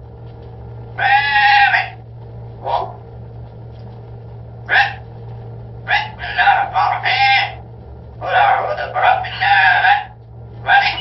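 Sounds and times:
parrot calling: 1.0 - 2.0, 4.7 - 5.1, 5.9 - 7.6, 8.2 - 11.0.

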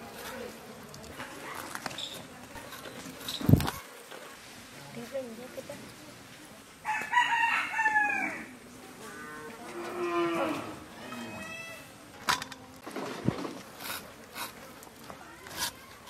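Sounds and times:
rooster crowing: 6.8 - 8.5
farm animal call: 6.9 - 12.0.

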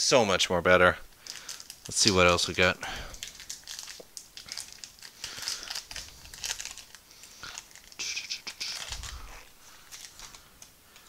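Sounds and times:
foil wrapper tearing and crinkling: 1.2 - 2.5, 3.1 - 10.5.

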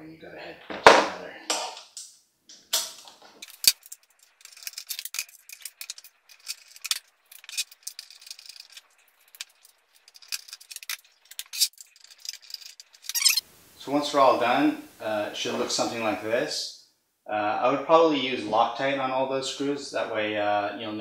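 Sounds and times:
metal and plastic parts rattling: 2.7 - 13.4.

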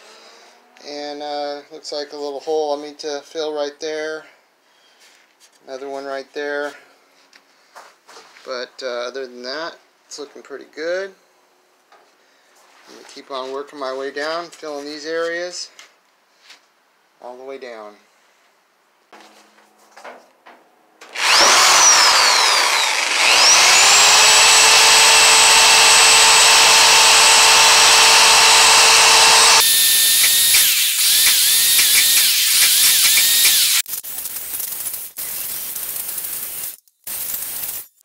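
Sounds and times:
angle grinder whining: 21.1 - 33.9
grinder grinding sheet metal: 21.1 - 38.0.

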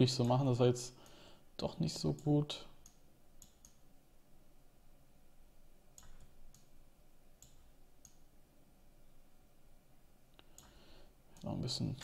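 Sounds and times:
faint computer mouse clicks: 10.4 - 10.8.

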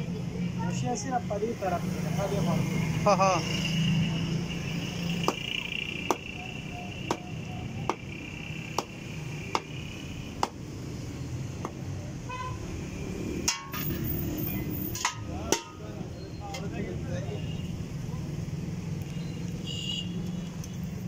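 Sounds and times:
knife chopping on wooden block: 5.2 - 5.5, 8.8 - 9.7.

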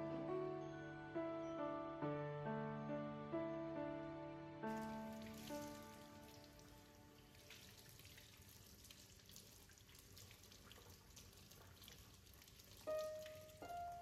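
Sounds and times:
tap water splashing into sink: 7.4 - 13.6.

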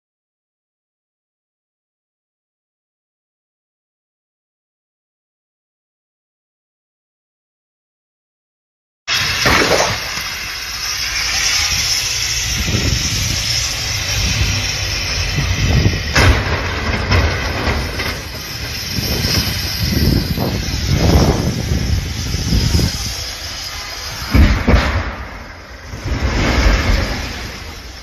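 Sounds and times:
vehicles rumbling on highway: 11.6 - 28.0
wind gusting on microphone: 11.6 - 28.0.

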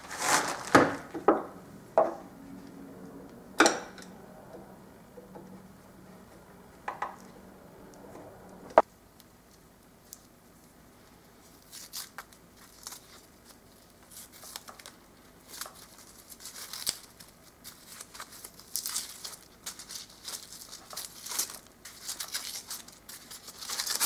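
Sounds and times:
brittle wrapping tearing: 0.0 - 1.1, 11.5 - 24.0.

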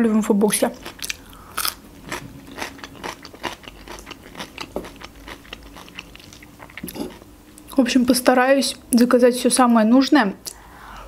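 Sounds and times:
cucumber crunching while chewed: 0.8 - 7.2.

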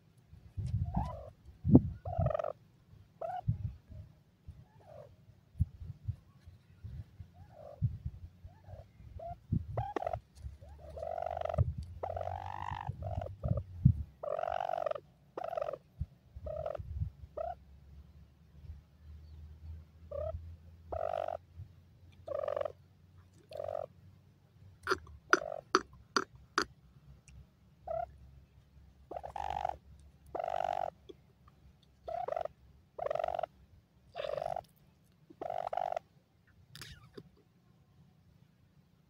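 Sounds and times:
birds harsh calls: 8.5 - 13.6, 20.1 - 21.4, 24.9 - 26.7, 29.1 - 31.0, 34.2 - 34.7, 35.3 - 36.1.

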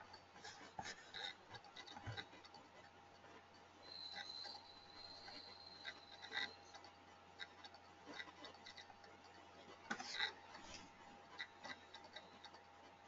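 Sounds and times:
faint steady hum: 0.0 - 13.0
irregular clicks and ticks: 0.0 - 13.0.

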